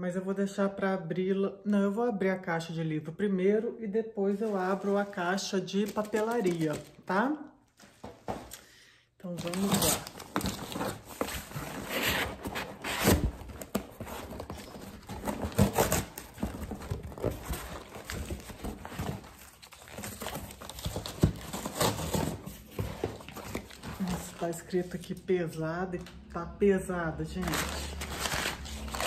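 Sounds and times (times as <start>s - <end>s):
paper packing rustling: 4.4s - 7.1s, 9.3s - 24.5s, 27.4s - 29.0s
cardboard box being opened: 9.4s - 24.4s, 27.5s - 29.0s.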